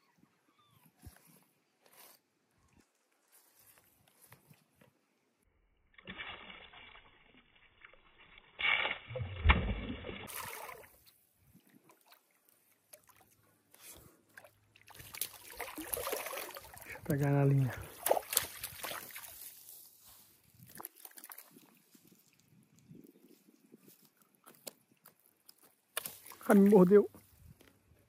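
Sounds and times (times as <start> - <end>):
fish splashing in water: 8.6 - 11.0, 14.4 - 17.0, 17.8 - 19.6.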